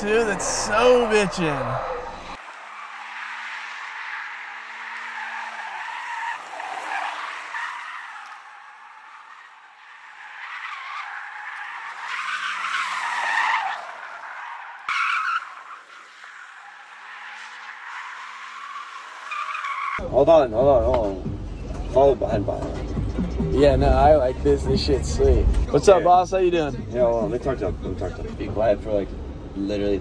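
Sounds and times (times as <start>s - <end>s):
car engine revving: 0.0s - 2.4s
tyres squealing: 0.0s - 20.0s.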